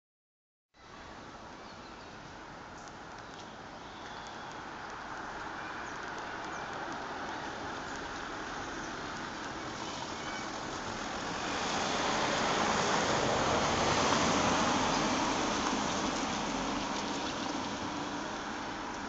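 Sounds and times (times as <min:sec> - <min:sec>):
vehicle passing on road: 0:04.6 - 0:19.0.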